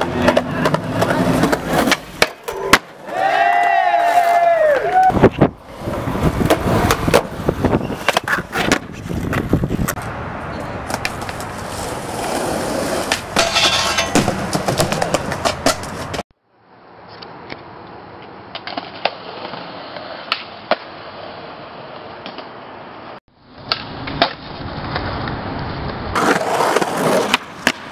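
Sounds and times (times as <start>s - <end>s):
skateboard clacks: 0.0s - 3.0s, 10.8s - 16.2s, 18.2s - 20.9s
skateboard rolling on concrete: 0.0s - 27.9s.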